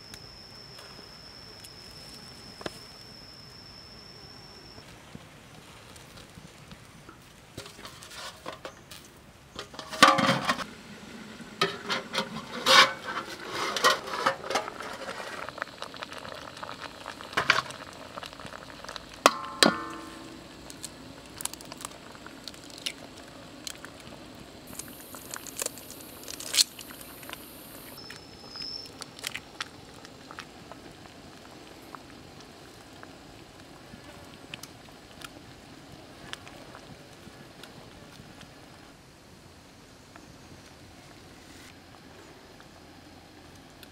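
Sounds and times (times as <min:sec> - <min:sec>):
wok and metal lid clinking: 0:19.3 - 0:20.3
steaming pan hiss: 0:23.0 - 0:29.0.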